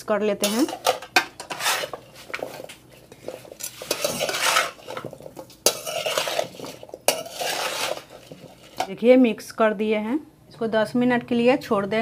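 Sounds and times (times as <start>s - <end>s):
metal spatula scraping metal bowl: 0.4s - 9.0s.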